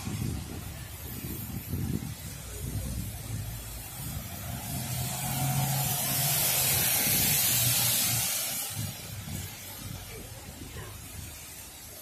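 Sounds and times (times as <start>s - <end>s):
tyres hissing on wet road: 0.0s - 12.0s
car engine hum: 2.5s - 11.5s.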